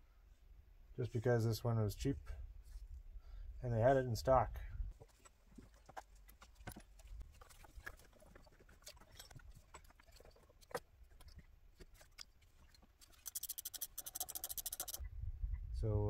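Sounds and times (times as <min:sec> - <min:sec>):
fast high ticks: 0:13.0 - 0:15.0.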